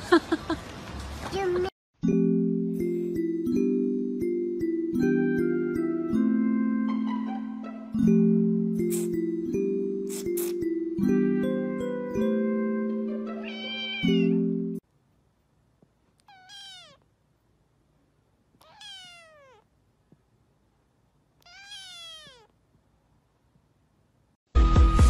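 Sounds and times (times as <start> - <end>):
music: 2.0 - 14.8, 24.5 - 25.0
kitten meowing: 13.4 - 14.4, 16.2 - 17.0, 18.6 - 19.7, 21.4 - 22.5.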